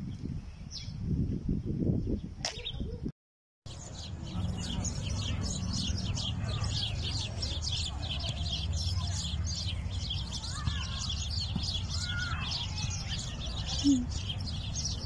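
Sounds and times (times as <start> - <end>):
small birds chirping: 3.7 - 15.0.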